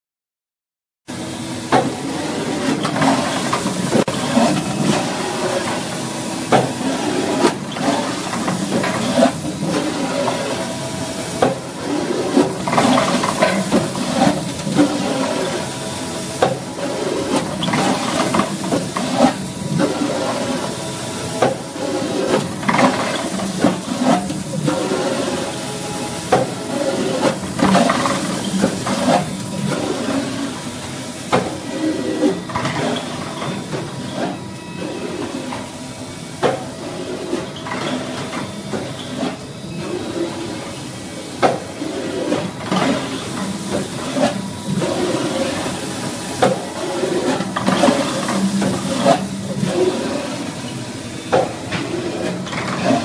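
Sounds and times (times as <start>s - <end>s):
polishing machine motor hum: 3.4s - 30.5s.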